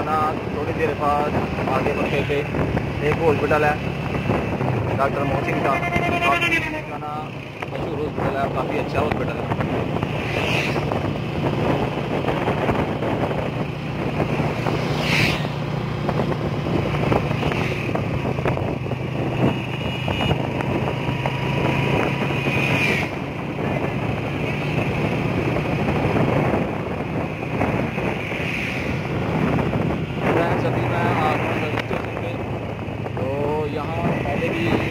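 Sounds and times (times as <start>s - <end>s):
wind and road noise: 0.0s - 34.9s.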